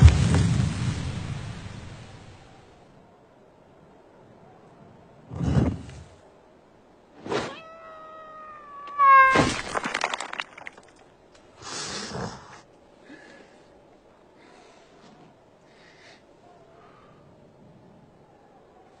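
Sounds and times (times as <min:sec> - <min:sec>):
long wailing cry: 0:07.5 - 0:09.5
loud crash and clatter: 0:09.3 - 0:11.0.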